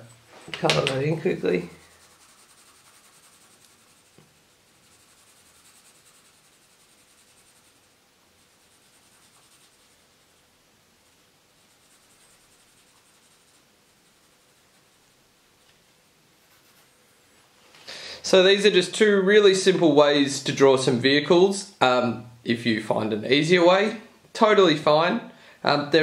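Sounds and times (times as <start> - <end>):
pencil scratching on paper: 1.2 - 15.2, 16.4 - 17.3.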